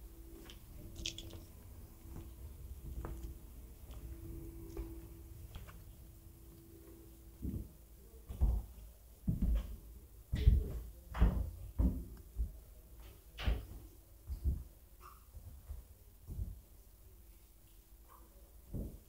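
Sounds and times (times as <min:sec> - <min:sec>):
footsteps on wooden floor: 0:00.4 - 0:06.1, 0:06.8 - 0:09.8.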